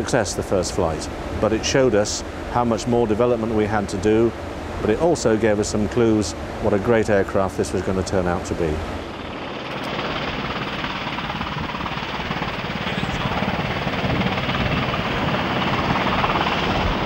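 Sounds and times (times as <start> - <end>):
helicopter hovering: 7.7 - 17.0.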